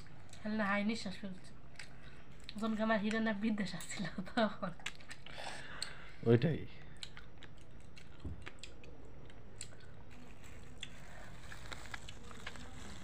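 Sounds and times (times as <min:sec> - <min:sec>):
plastic bag crinkling: 0:10.1 - 0:13.0.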